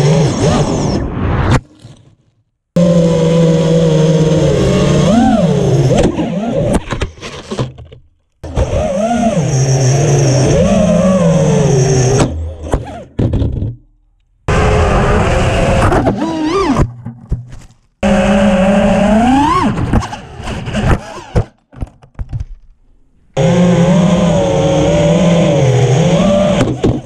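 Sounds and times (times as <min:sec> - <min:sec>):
quadcopter motors whining: 0:00.0 - 0:00.9, 0:02.8 - 0:06.8, 0:08.4 - 0:12.6, 0:14.5 - 0:16.8, 0:18.0 - 0:19.8, 0:23.4 - 0:27.0.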